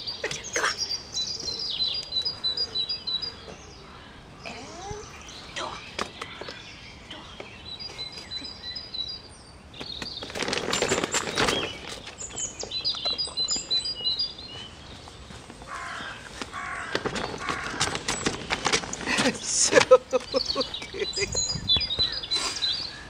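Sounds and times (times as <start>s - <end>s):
small birds chirping: 0.0s - 23.0s
nylon tunnel rustling: 10.1s - 13.6s, 14.6s - 21.2s.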